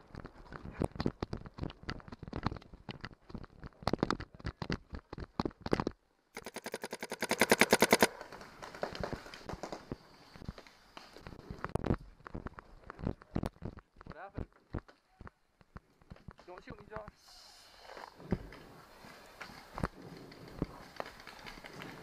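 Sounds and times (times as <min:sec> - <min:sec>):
sharp clicks: 0:06.4 - 0:08.1
paintball marker firing: 0:06.4 - 0:08.2.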